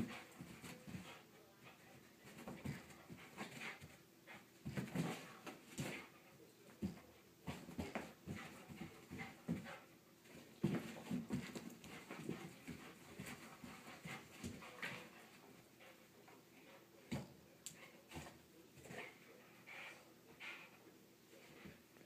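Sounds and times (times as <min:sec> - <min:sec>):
dog panting: 0:00.0 - 0:16.9, 0:17.7 - 0:21.8
paws thudding on carpet: 0:02.2 - 0:06.2, 0:06.8 - 0:15.9.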